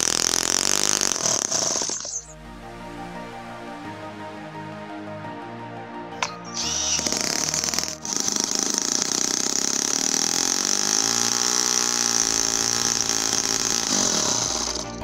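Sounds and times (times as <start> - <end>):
small engine buzzing: 0.0 - 2.3, 6.2 - 15.0.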